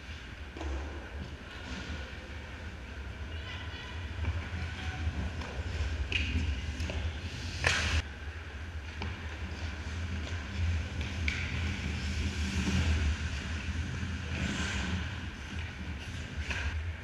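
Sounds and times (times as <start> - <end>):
steady low rumble: 0.1 - 17.0
skates scraping on ice: 4.0 - 8.0, 8.8 - 16.8.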